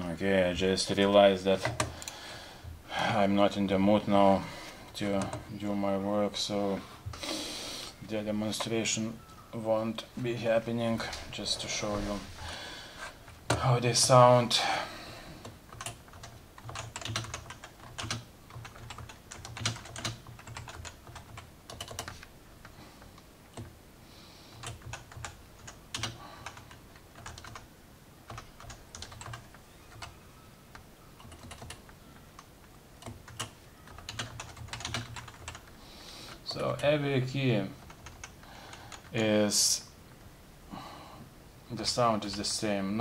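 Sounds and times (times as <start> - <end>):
soft keyboard keystrokes: 15.4 - 22.3, 24.5 - 27.6, 28.3 - 30.1, 30.7 - 36.4.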